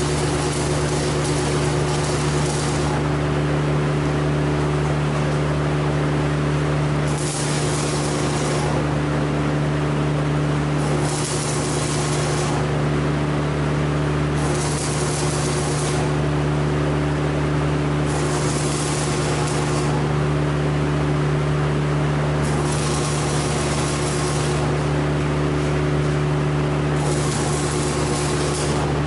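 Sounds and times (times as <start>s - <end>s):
welding arc hissing: 0.0s - 3.5s, 6.8s - 9.1s, 10.7s - 12.9s, 14.2s - 16.4s, 18.0s - 20.2s, 22.4s - 29.0s
steady low hum: 0.0s - 29.0s.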